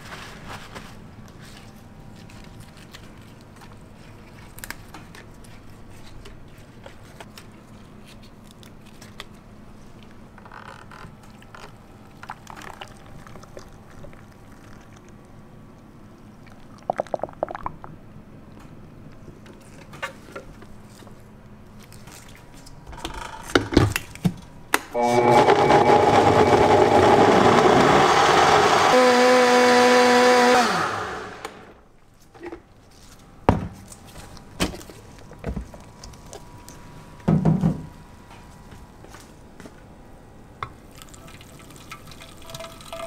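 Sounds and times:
blender motor whining: 25.0 - 31.8.

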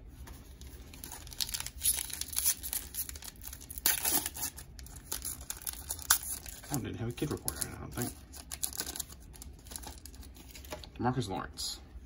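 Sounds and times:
foil wrapper crinkling and tearing: 0.6 - 10.8.

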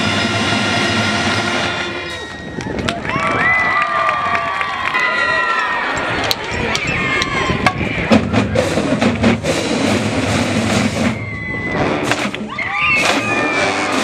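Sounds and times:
sustained low brass notes: 0.0 - 2.3.

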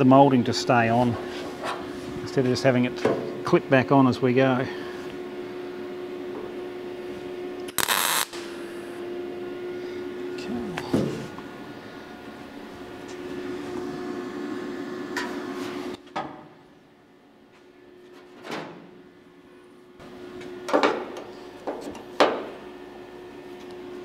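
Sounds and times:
steady background hum: 0.0 - 24.0.

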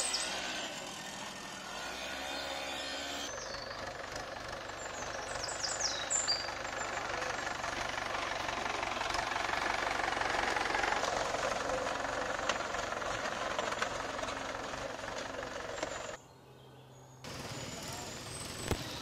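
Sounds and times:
bird chirps: 3.3 - 3.8, 4.8 - 7.0
motorcycle engine running: 3.3 - 16.2
tractor engine knocking: 3.4 - 16.2.

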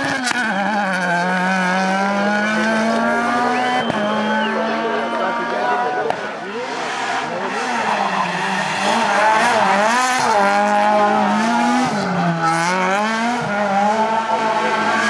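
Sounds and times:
rally car engine at high revs: 0.0 - 15.0.

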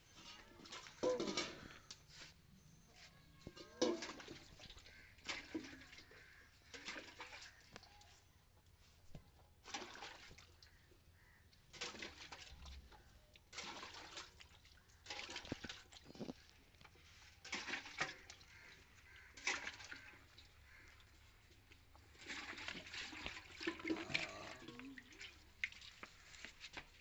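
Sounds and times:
milk squirting into steel pail: 0.2 - 2.0, 3.4 - 7.9, 9.7 - 10.8, 13.5 - 26.6.

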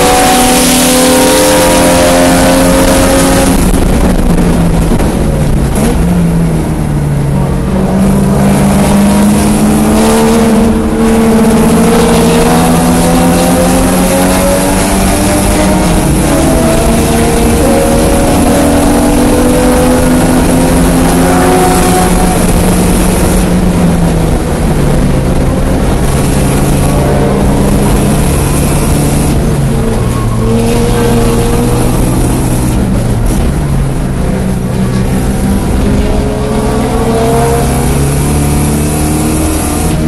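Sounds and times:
car engine accelerating hard: 0.0 - 40.0.

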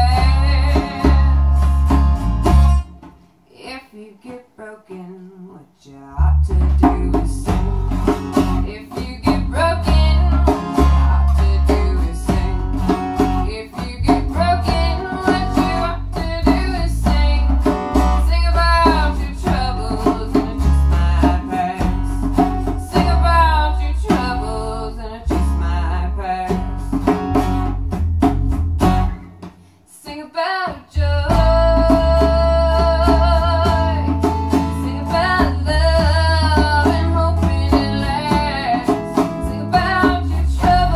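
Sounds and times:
bass guitar notes: 0.0 - 3.0, 6.2 - 29.4, 31.0 - 40.9
strummed acoustic guitar: 0.0 - 3.4, 6.5 - 29.8, 30.4 - 40.9
djembe hand drum strokes: 31.3 - 40.9.

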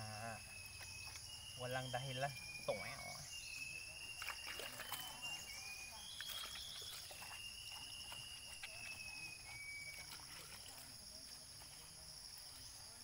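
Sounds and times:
high insect chorus: 0.0 - 13.0
long thin high whistle: 0.4 - 10.7
small clicks and drips: 0.7 - 1.4, 6.0 - 11.0
splashing and scrubbing hands: 4.0 - 12.4.

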